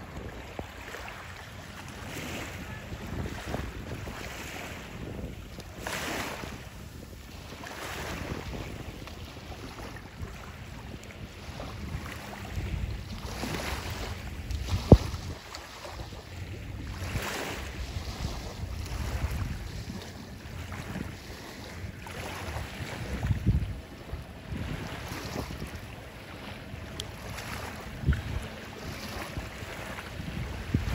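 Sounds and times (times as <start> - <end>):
gentle waves washing in: 0.0 - 30.9
wind buffeting microphone: 0.0 - 30.9.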